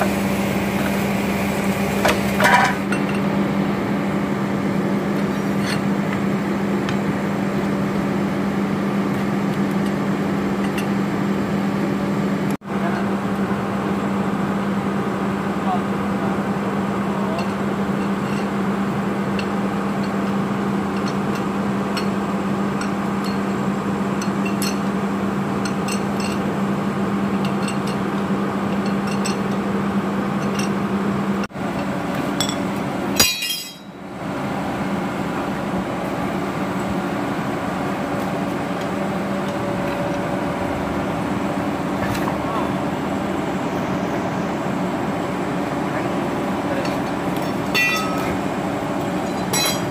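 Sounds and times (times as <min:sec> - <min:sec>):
steady mechanical hum: 0:00.0 - 0:49.9
metal tools clinking on metal: 0:32.4 - 0:32.6, 0:33.2 - 0:34.0, 0:46.8 - 0:48.4, 0:49.2 - 0:49.9.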